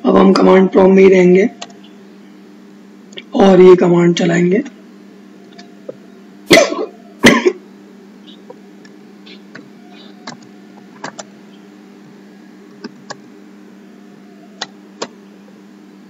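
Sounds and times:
low electrical hum: 0:00.0 - 0:16.0
man clearing his throat: 0:06.5 - 0:07.6.

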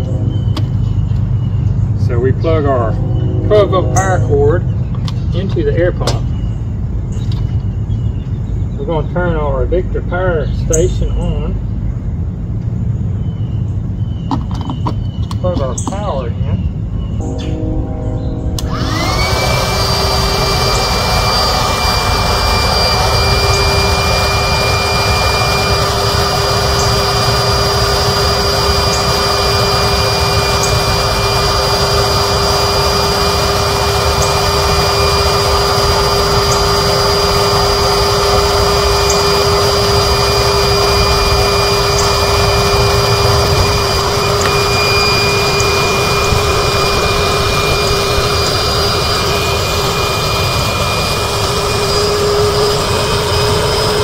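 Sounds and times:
electric air pump whining: 0:00.0 - 0:06.2, 0:17.3 - 0:54.0.

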